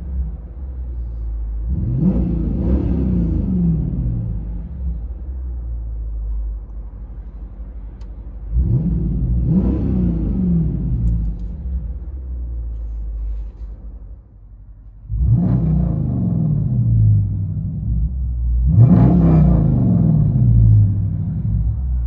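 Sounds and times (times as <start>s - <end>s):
car engine idling and revving: 0.0s - 22.0s
straight-piped engine revving sharply: 8.5s - 11.0s, 15.1s - 17.6s, 18.6s - 21.2s.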